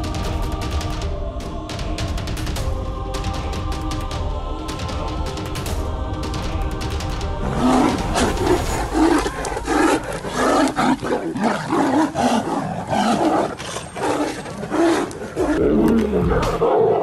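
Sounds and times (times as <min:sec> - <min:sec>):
tigers roaring: 0:07.4 - 0:17.0.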